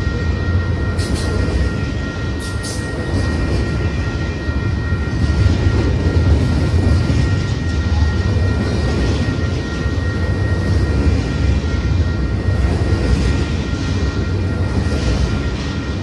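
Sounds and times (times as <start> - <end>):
faint high ringing tones: 0.0 - 16.0
freight train wheels rumbling: 0.0 - 16.0.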